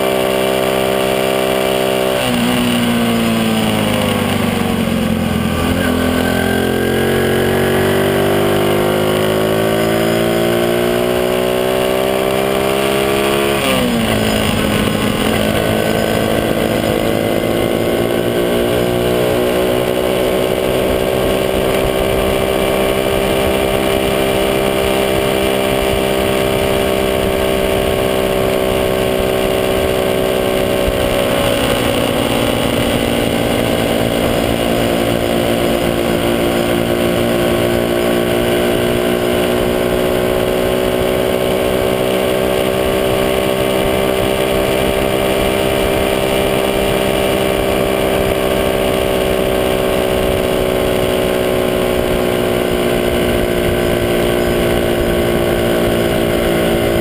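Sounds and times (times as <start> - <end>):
small motorcycle engine revving: 0.0 - 57.0.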